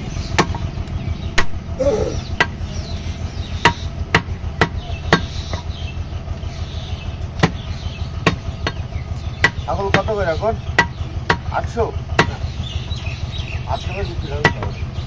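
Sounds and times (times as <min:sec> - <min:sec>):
cleaver chopping on wooden block: 0:00.4 - 0:00.7, 0:02.4 - 0:02.6, 0:03.6 - 0:05.6, 0:07.4 - 0:07.6, 0:08.2 - 0:08.8, 0:09.4 - 0:10.2, 0:10.8 - 0:11.5, 0:12.2 - 0:12.4, 0:14.4 - 0:14.8.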